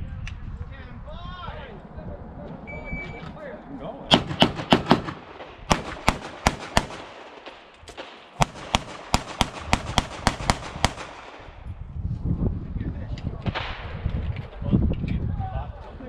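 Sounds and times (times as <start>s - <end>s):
rapid handgun fire: 4.1s - 11.7s.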